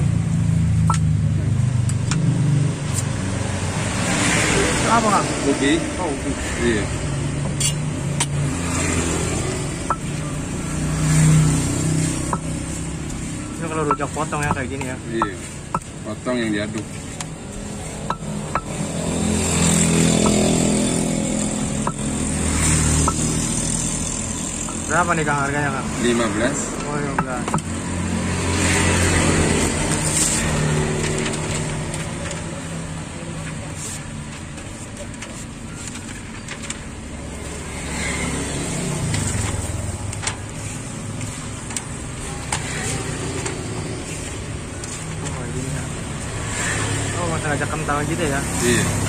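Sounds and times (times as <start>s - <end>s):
pestle knocking stone mortar: 12.3s - 12.6s, 18.0s - 19.0s, 20.1s - 20.7s, 21.8s - 22.2s, 27.1s - 27.8s
spatula clicking on stone mortar: 21.8s - 22.1s.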